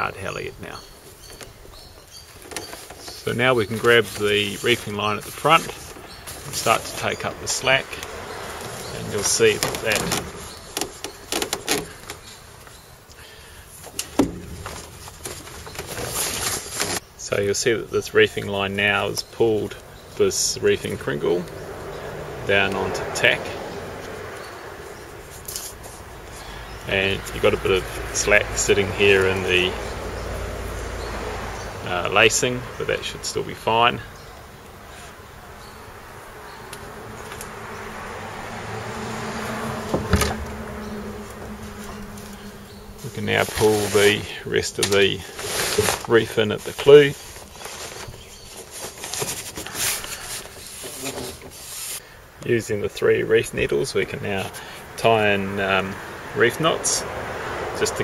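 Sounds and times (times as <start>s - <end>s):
rope and sailcloth rubbing: 2.3s - 11.9s, 39.4s - 44.3s, 44.9s - 52.0s.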